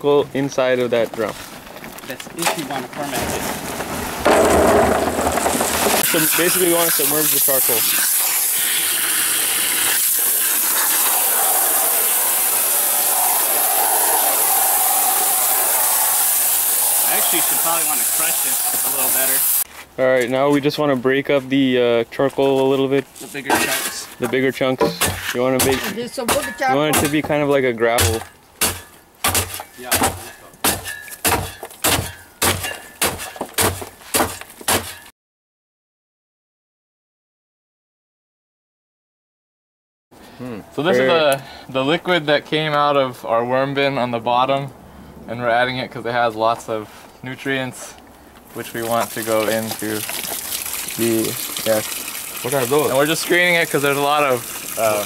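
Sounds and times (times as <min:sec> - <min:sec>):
boards crushing charcoal: 0:00.7 - 0:08.5, 0:22.4 - 0:35.1, 0:48.4 - 0:51.8
hose water splashing into drum: 0:02.6 - 0:19.7, 0:48.6 - 0:55.0.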